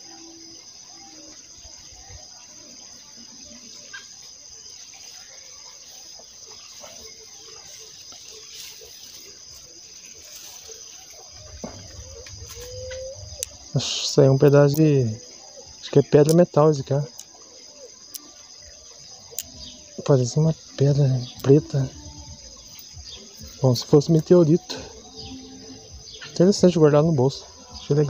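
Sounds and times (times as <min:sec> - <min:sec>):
insects chirring: 0:00.0 - 0:28.0
faint rustles: 0:05.0 - 0:13.6.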